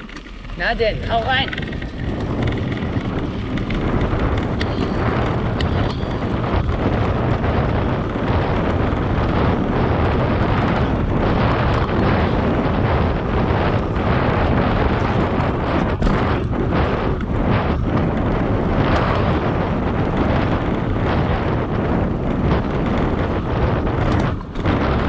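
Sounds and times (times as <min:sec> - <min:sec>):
bike rattling knocks: 0:00.0 - 0:25.0
low tyre rumble: 0:00.0 - 0:25.0
wind buffeting microphone: 0:00.0 - 0:25.0.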